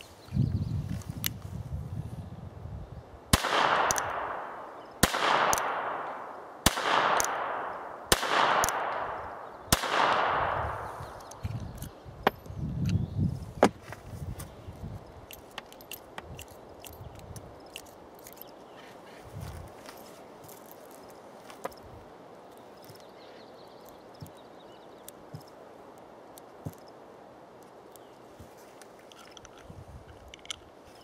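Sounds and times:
gunshots with echo: 3.3s - 10.8s.

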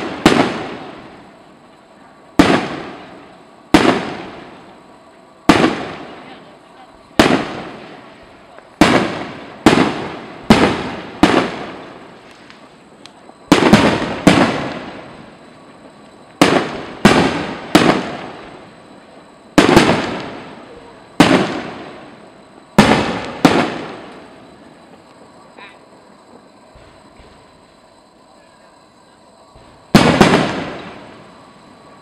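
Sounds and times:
firework shells bursting: 0.0s - 1.2s, 2.4s - 4.7s, 5.4s - 6.2s, 7.2s - 25.3s, 29.5s - 31.9s.

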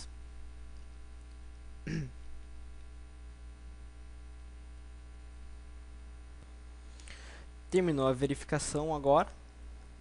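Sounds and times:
low electrical hum: 0.0s - 10.0s
short voice sound: 1.9s - 2.1s.

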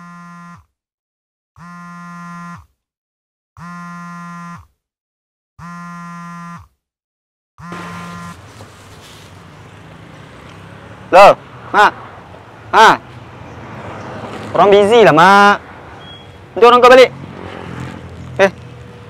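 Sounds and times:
mobile phone buzzing: 0.0s - 0.8s, 1.6s - 2.8s, 3.6s - 4.8s, 5.6s - 6.8s, 7.6s - 8.6s.

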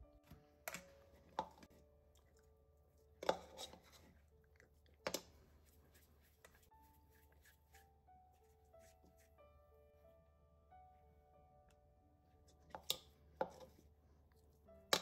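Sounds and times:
spoon scraping plastic bowl: 3.2s - 4.2s.

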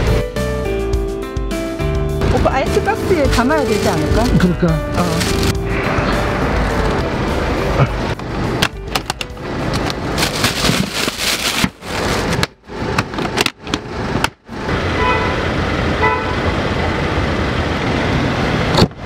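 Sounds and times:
street traffic noise: 1.9s - 19.0s
plastic bag rustling: 2.6s - 5.6s, 9.1s - 12.6s
handling sounds: 2.7s - 5.6s, 8.6s - 14.3s.

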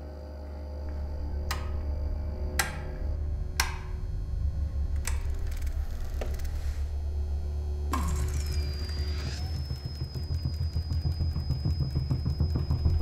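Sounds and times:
deep steady hum: 0.0s - 13.0s
metal toggle switch clicks: 3.6s - 3.9s.

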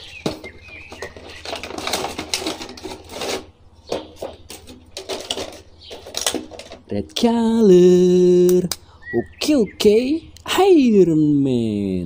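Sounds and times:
plastic packaging crackling: 0.0s - 6.9s.

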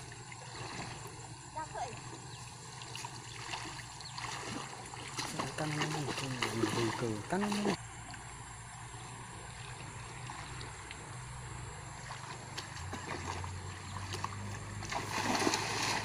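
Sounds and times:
river water: 0.0s - 16.0s
water splashing from thrown net: 3.4s - 7.8s, 12.2s - 16.0s.

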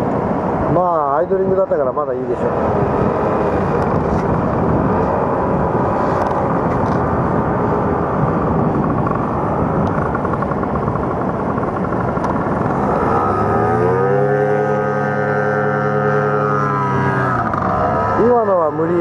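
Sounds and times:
paramotor engine droning: 0.0s - 19.0s.

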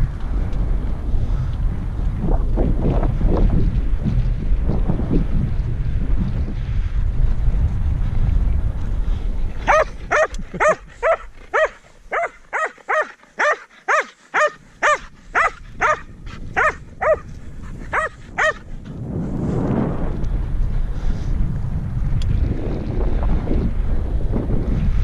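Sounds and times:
wind on microphone: 0.0s - 25.0s
dog barking: 9.7s - 17.3s, 17.9s - 18.6s.

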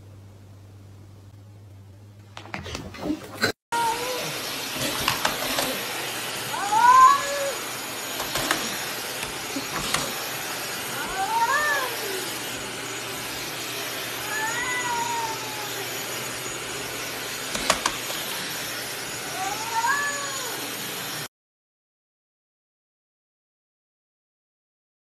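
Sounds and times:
cat meowing in long yowls: 6.5s - 7.6s, 10.9s - 12.4s, 14.1s - 16.0s, 19.2s - 20.6s.

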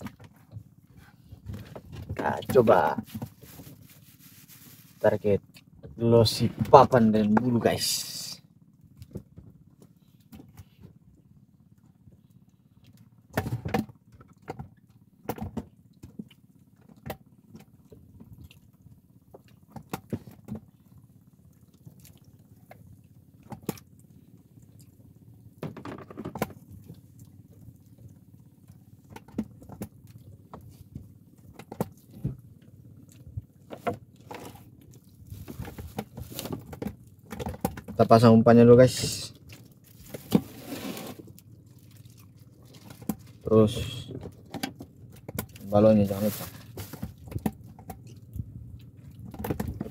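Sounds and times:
low steady hum: 0.0s - 49.9s
fishing tackle clicks and knocks: 25.6s - 27.0s.

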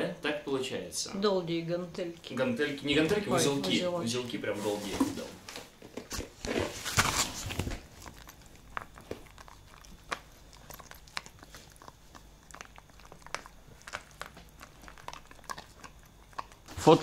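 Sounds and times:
dog gnawing hard chew: 6.0s - 17.0s.

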